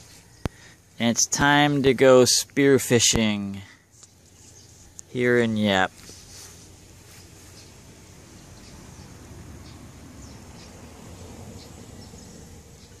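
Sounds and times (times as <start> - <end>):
low wind rumble: 7.6 - 13.0.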